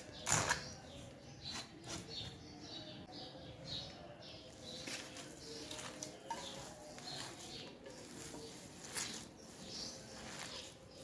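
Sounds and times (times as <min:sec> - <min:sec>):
hand mixing food in a bowl: 0:04.4 - 0:11.0.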